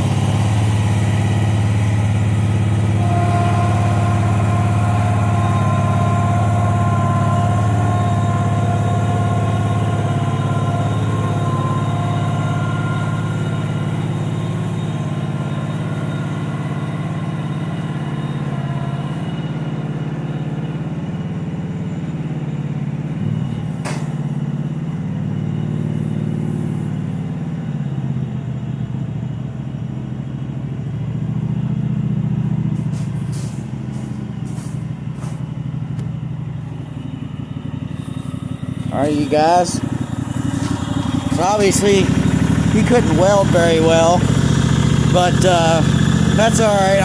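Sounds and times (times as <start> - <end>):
garden tractor engine running: 0.0 - 25.4, 32.6 - 47.0.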